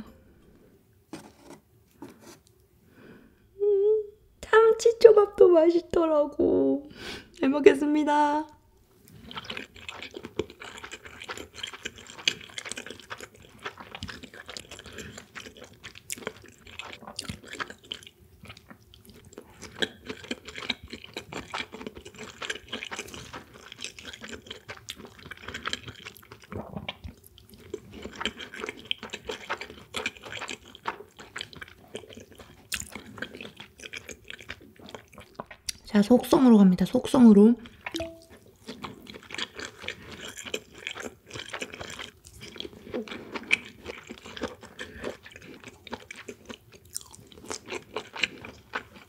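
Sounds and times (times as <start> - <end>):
chewing with mouth clicks: 9.1 - 35.9, 37.6 - 49.0.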